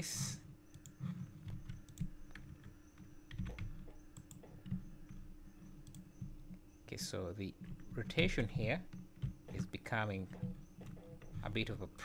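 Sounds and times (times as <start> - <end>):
computer keys clicking: 0.7 - 12.0.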